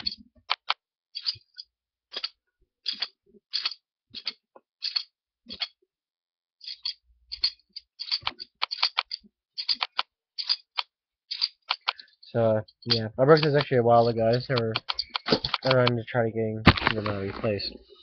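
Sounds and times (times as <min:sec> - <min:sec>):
handcuffs ratchet clicking: 0:06.6 - 0:12.1, 0:12.9 - 0:16.0.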